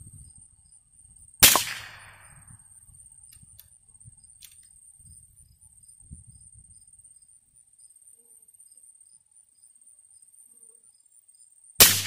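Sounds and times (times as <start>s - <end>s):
rifle shot crack: 1.4s - 2.4s, 11.8s - 12.0s.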